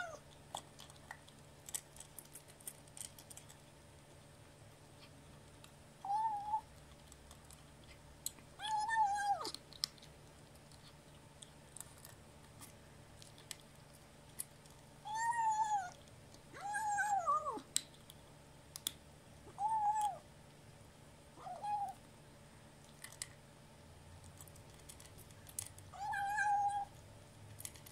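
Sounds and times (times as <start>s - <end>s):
kibble crunching: 0.0s - 19.0s, 22.8s - 23.4s, 24.1s - 27.9s
kitten making sing-song calls: 6.0s - 6.7s, 19.5s - 20.2s, 21.4s - 22.0s, 26.0s - 26.9s.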